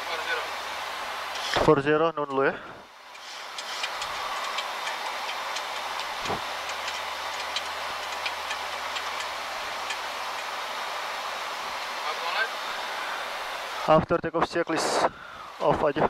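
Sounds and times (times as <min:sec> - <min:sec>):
rushing air and ventilation: 0:00.2 - 0:16.0
faint ticks: 0:03.1 - 0:10.5.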